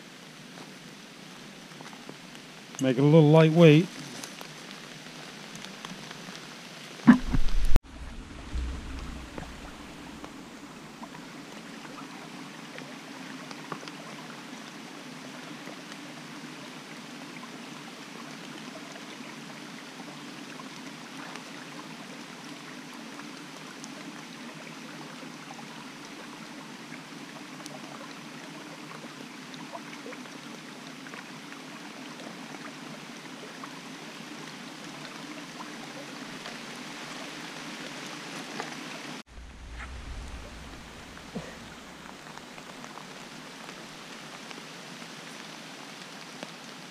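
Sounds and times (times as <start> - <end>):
rain and stream water rushing: 0.0 - 46.9
raindrop ticks: 4.0 - 10.4, 39.6 - 44.6.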